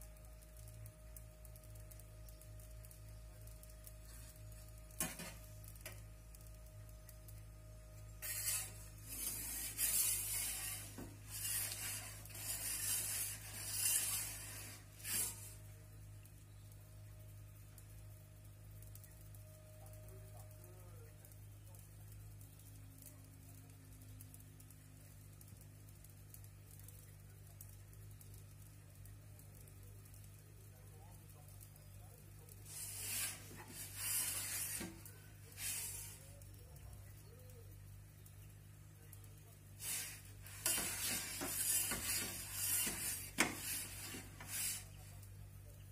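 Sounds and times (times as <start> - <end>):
steady low hum: 0.0 - 45.9
metal peel scraping on stone: 8.2 - 15.6, 39.8 - 45.0.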